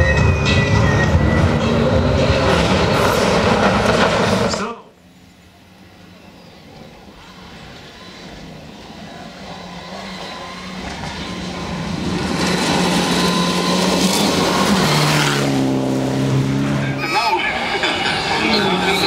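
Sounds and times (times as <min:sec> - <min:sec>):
rally car engine at full throttle: 0:00.0 - 0:04.9, 0:07.3 - 0:19.0.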